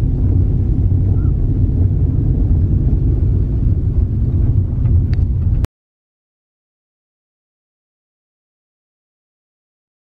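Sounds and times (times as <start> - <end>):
car driving on dirt road: 0.0 - 5.7.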